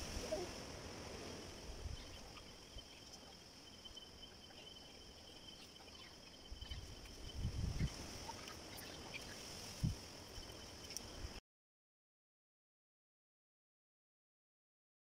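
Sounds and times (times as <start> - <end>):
night insects chirring: 0.0 - 11.4
whistle-like insect tone: 0.0 - 11.4.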